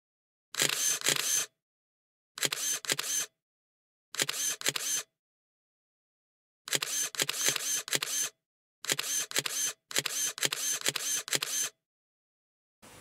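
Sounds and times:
camera shutter clicks: 0.6 - 1.5, 2.4 - 3.3, 4.2 - 5.1, 6.7 - 11.8.

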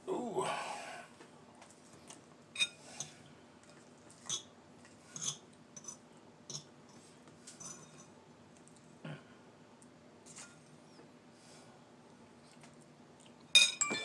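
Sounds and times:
fork clinking against ceramic bowl: 13.5 - 14.0.

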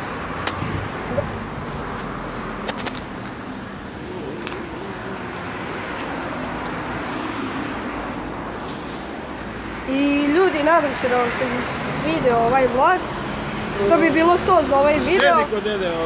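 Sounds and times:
passing cars and road noise: 0.0 - 16.0.

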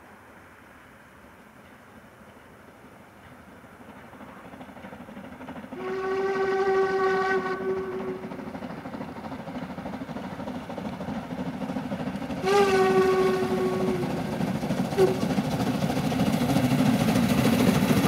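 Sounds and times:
rumble of approaching train: 0.0 - 18.0
steam locomotive whistle blasts: 5.8 - 8.3, 12.4 - 14.3, 14.9 - 15.3.

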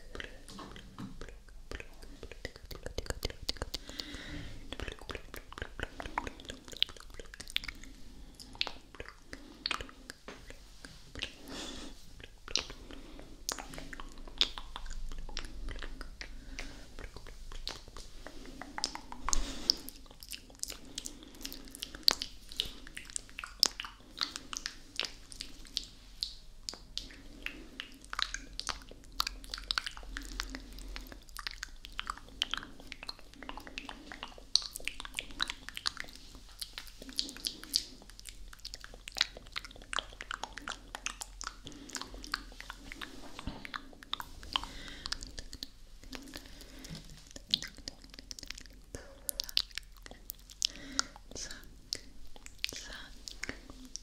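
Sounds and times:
tongue clicks: 0.0 - 11.4, 12.2 - 12.9, 13.5 - 54.0
wet lip smacks and kisses: 13.5 - 20.8, 21.4 - 54.0.

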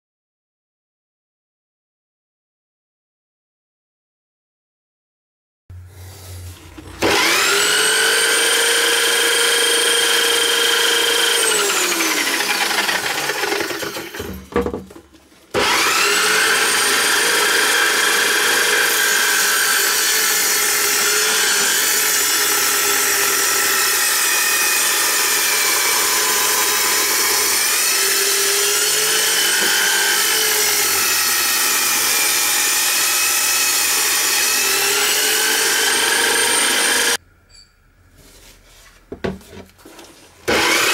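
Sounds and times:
saw blade whine: 6.2 - 14.6, 15.5 - 37.8, 40.5 - 40.9
saw cutting through board: 6.3 - 14.6, 15.5 - 37.2, 40.4 - 40.9.

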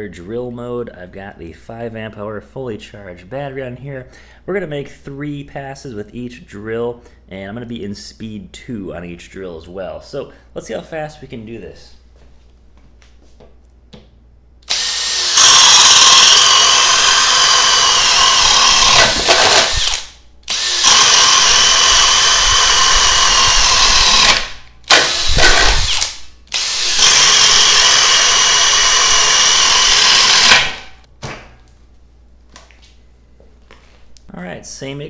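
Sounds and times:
drill boring through wood: 14.6 - 31.0.

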